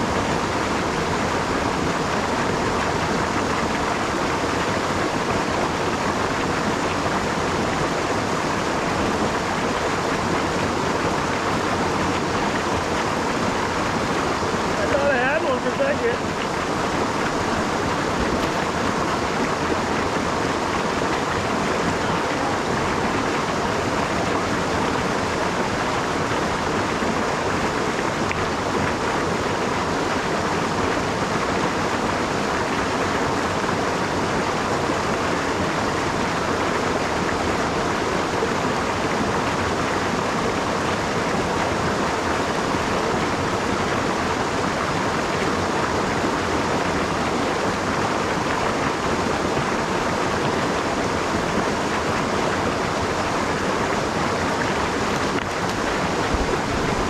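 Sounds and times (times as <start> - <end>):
brook rushing over stones: 1.9 - 33.0, 41.4 - 57.0.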